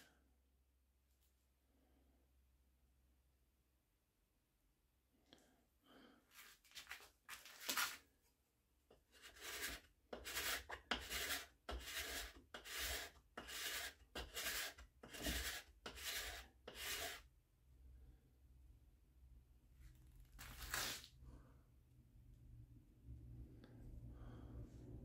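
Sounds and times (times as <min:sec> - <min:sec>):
card scraper rasping on wood: 0:09.1 - 0:17.2.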